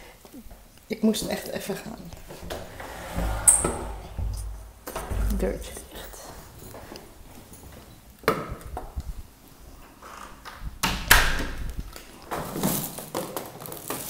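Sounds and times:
sharp knocks and clatters: 2.2s - 8.5s.

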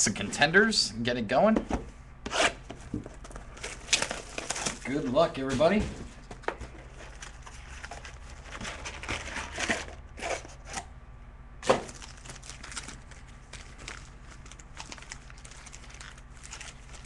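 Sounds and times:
shrink-wrap tearing and crinkling: 3.6s - 5.0s, 11.6s - 17.0s.

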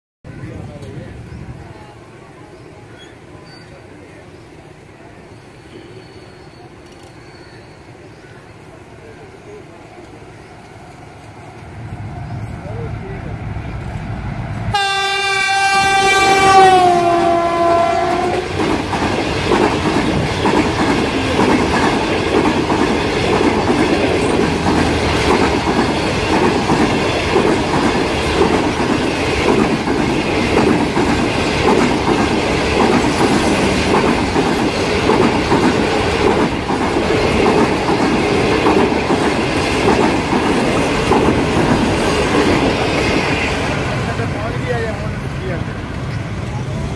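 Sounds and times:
locomotive horn blast: 14.7s - 18.5s
train wheels clacking on rails: 15.7s - 46.5s.

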